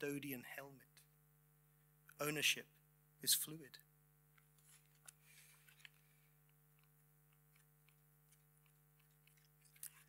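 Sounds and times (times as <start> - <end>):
low steady hum: 0.0 - 10.0
book pages turning: 4.5 - 10.0.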